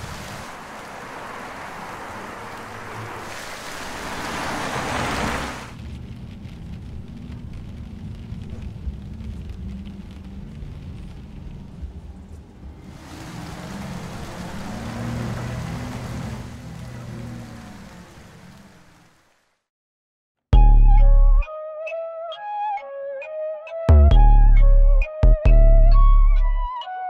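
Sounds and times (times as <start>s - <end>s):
tyres hissing on wet road: 0.0s - 19.6s
low rumble: 5.8s - 12.8s.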